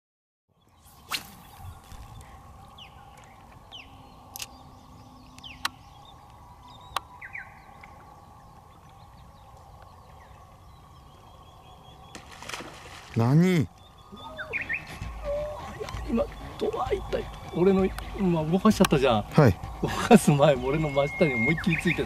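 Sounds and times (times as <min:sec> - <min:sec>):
faint steady hum: 0:00.6 - 0:13.1.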